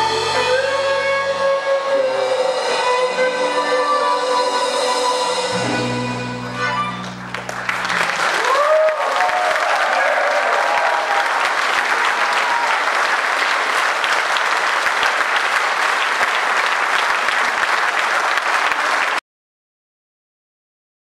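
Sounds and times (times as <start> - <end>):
band's last note: 0.0 - 8.4
audience applauding: 6.7 - 19.2.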